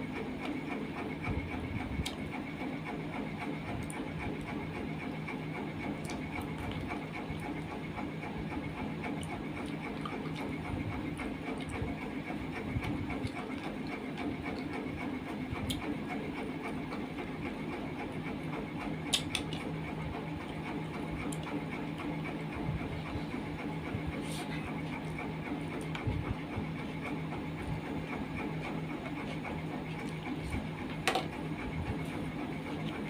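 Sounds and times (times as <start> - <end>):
droning hum: 0.0 - 33.0
person chewing and smacking: 6.0 - 7.6, 9.1 - 11.9, 12.8 - 14.7, 15.6 - 15.9, 19.0 - 19.7, 20.4 - 21.6, 29.2 - 30.7.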